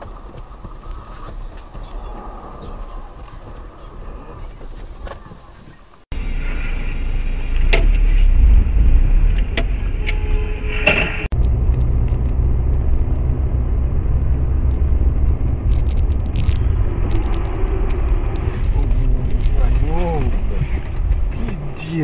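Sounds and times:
car engine and tyres rumbling: 0:00.0 - 0:22.0.

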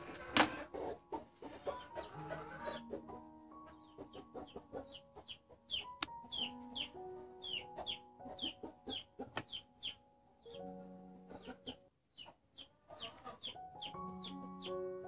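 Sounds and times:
music of held notes: 0:00.0 - 0:11.9, 0:13.1 - 0:15.0
chicks peeping: 0:00.0 - 0:15.0.

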